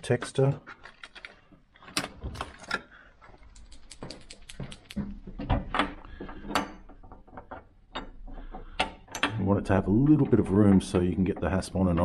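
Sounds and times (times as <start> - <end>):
small objects clicking and tapping: 2.4 - 9.4.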